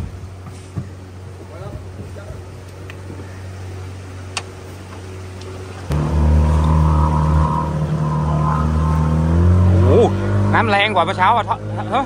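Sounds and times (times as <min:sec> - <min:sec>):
boat motor running: 0:02.9 - 0:12.0.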